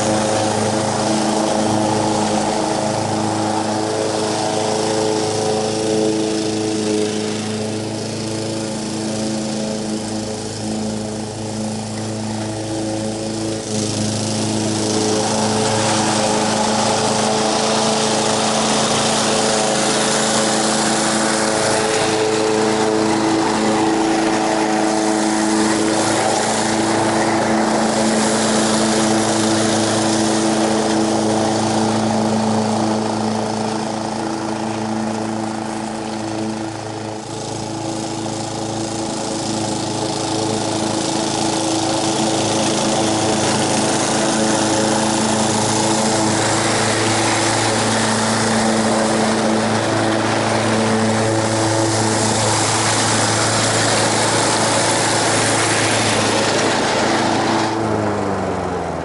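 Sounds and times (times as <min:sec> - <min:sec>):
lawn mower engine running: 0:00.0 - 0:59.0.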